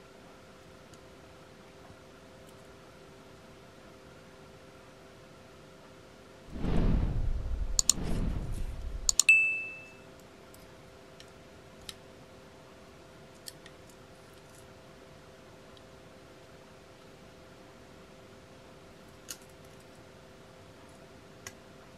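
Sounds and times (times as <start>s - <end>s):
low whooshes: 6.5s - 9.2s
mouse clicks: 7.8s - 8.0s, 9.0s - 9.3s
short high ding: 9.3s - 10.0s.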